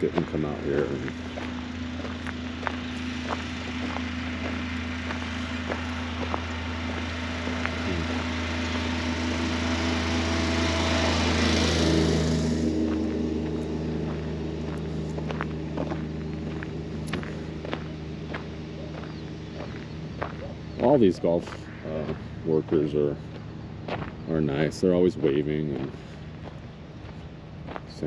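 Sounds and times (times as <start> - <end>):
small engine passing: 0.0 - 28.0
footsteps clicking: 1.0 - 8.2, 12.8 - 24.2.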